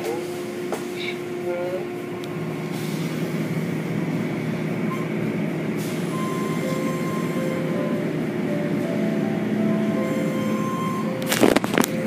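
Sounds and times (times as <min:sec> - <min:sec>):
car wash machinery running: 0:00.0 - 0:12.0.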